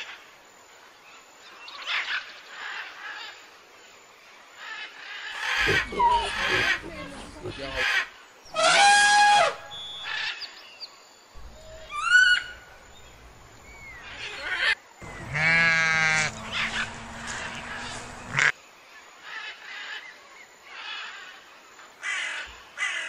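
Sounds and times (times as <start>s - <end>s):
elephant trumpeting: 5.4s - 7.8s, 11.4s - 18.5s
sheep bleating: 15.0s - 18.5s.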